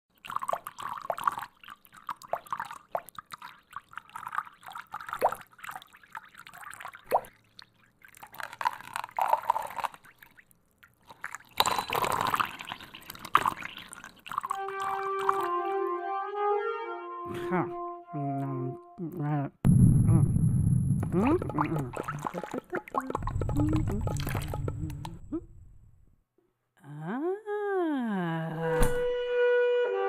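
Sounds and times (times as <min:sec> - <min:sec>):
water dripping: 0:00.1 - 0:15.5, 0:21.0 - 0:26.0
water pouring: 0:00.1 - 0:15.6, 0:20.9 - 0:25.8.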